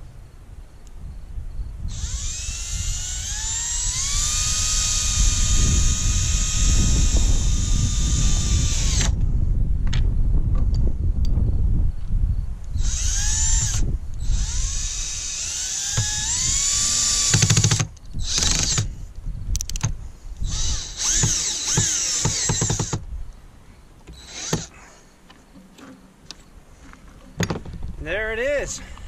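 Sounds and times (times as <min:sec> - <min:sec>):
cordless drill motor whining: 0:01.9 - 0:09.2, 0:12.7 - 0:19.0, 0:19.7 - 0:23.0, 0:24.1 - 0:24.8.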